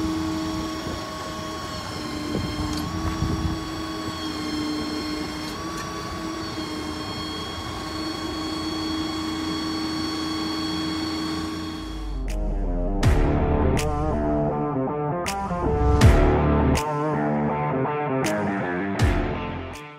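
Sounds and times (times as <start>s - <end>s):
hydraulic crane whining: 0.0s - 14.7s
music: 12.0s - 19.9s.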